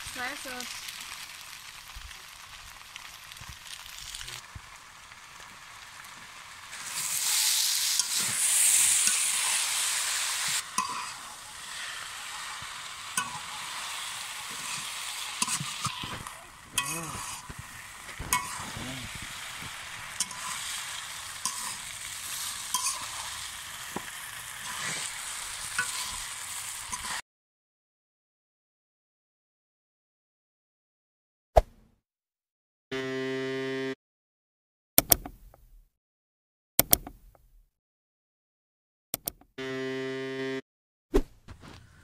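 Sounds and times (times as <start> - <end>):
noodles sizzling in a wok: 0.0 - 27.2
metal spatula scraping a pan: 6.7 - 27.2.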